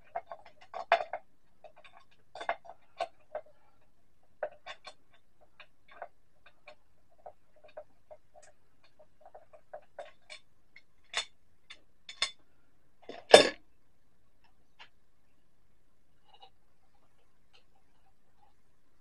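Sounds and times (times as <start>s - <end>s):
metal clank: 13.1s - 13.6s.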